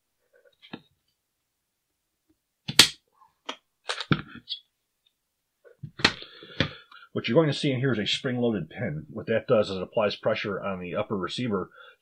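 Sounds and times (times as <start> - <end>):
sharp snap of rifle: 2.7 - 3.0.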